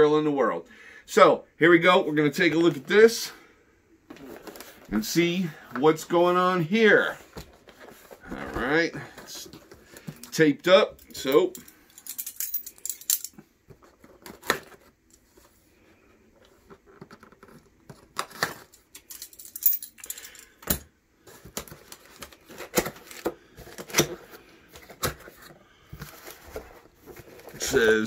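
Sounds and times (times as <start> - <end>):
cardboard scraping and rustling: 7.1 - 10.0, 21.3 - 28.0.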